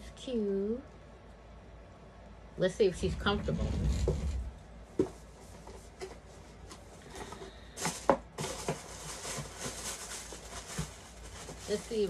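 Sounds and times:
packaging rustling: 0:05.7 - 0:12.0.

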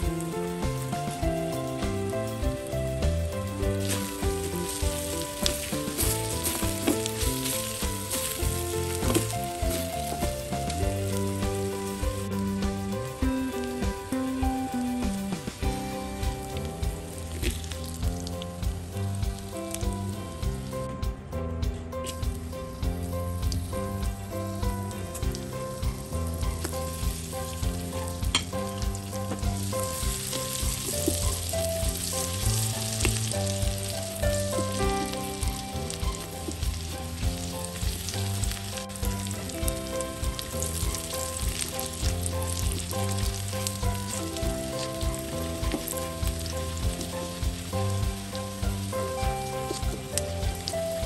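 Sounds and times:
garlic sizzling in hot oil: 0:00.0 - 0:20.9, 0:22.0 - 0:51.0
background music with steady beat: 0:00.0 - 0:51.0.

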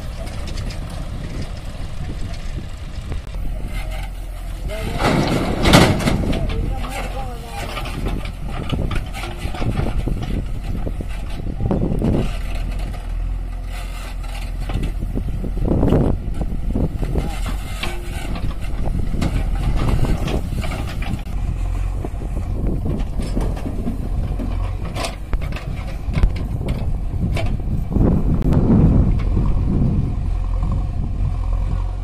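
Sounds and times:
diesel engine under load: 0:00.0 - 0:32.0.

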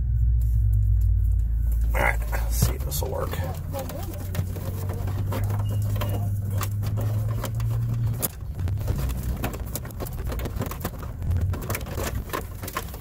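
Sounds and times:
steady low hum: 0:00.0 - 0:13.0
wire scraping against trim: 0:03.4 - 0:13.0.

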